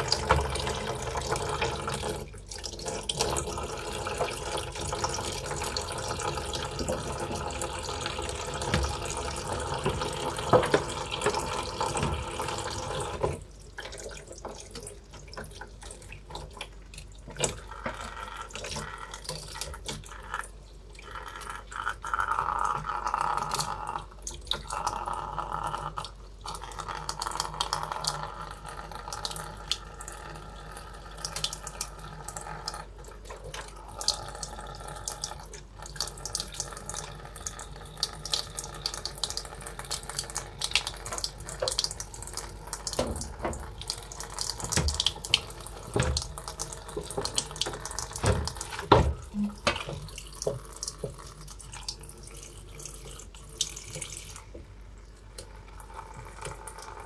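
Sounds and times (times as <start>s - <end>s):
tap water into plastic basin: 0.0s - 20.2s, 38.3s - 51.4s
dull knocks: 48.2s - 50.0s.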